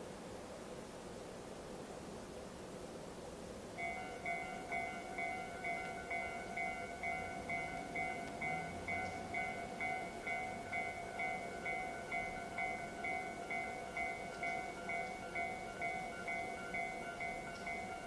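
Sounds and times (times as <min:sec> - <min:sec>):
level crossing warning bell: 0:03.8 - 0:18.0.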